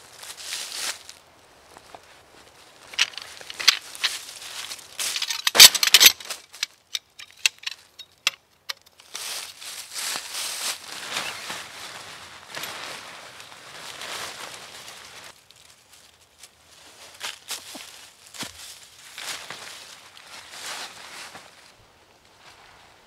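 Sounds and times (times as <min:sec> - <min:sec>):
crunching in dry leaves: 0:00.0 - 0:23.0.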